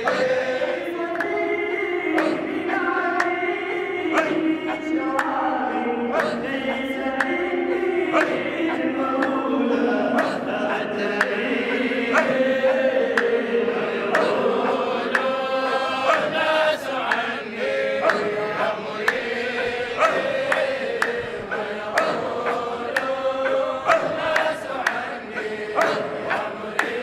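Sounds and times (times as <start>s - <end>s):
men chanting together: 0.0s - 27.0s
drum beat: 14.0s - 16.5s, 18.0s - 27.0s.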